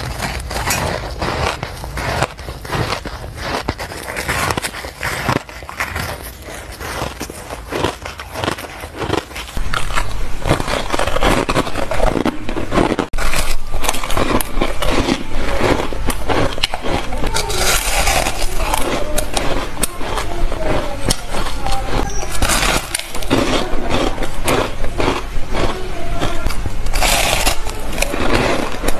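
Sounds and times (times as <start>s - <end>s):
crunching bites of ice: 0.0s - 20.3s
ice scraping: 0.0s - 24.8s, 25.7s - 28.9s.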